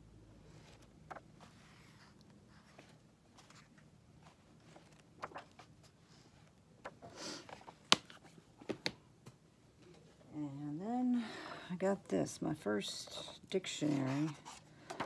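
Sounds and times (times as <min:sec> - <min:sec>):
book pages turning: 0:00.5 - 0:09.0, 0:13.8 - 0:15.0.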